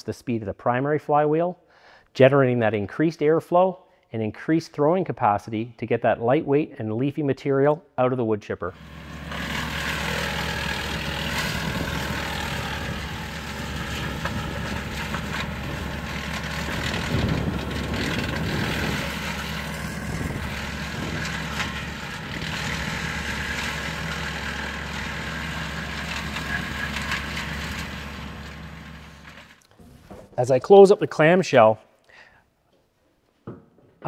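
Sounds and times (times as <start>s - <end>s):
tractor and chipper drone: 8.7s - 29.8s
wood crackling as it is chipped: 8.8s - 29.8s.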